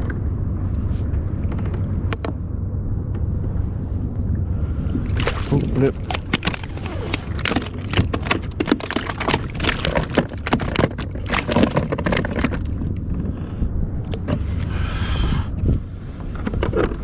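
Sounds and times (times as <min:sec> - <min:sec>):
low rumble of wind and water: 0:00.0 - 0:17.0.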